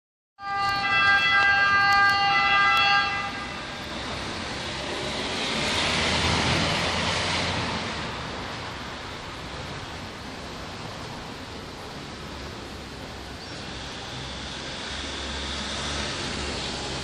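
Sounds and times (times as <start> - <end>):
two-tone ambulance siren: 0.4 - 5.6
car passing: 0.4 - 17.0.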